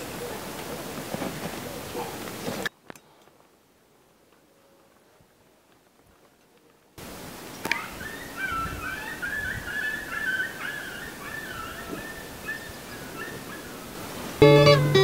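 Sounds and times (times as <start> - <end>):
steady outdoor hiss: 0.0 - 15.0
high wavering animal call: 7.7 - 13.7.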